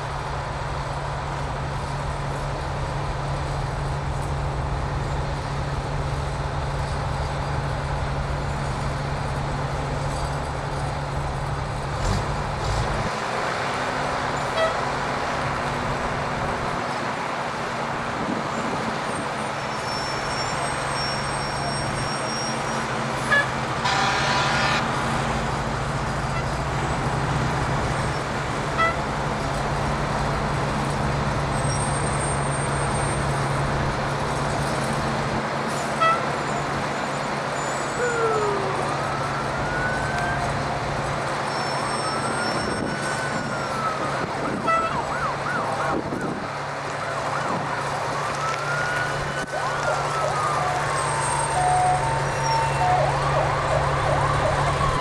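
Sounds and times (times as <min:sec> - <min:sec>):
truck engines droning: 0:00.0 - 0:55.0
air horn: 0:14.6 - 0:14.8, 0:23.3 - 0:24.9, 0:28.8 - 0:29.0, 0:36.0 - 0:36.3, 0:44.6 - 0:45.0
sirens wailing: 0:19.1 - 0:30.2, 0:36.0 - 0:55.0.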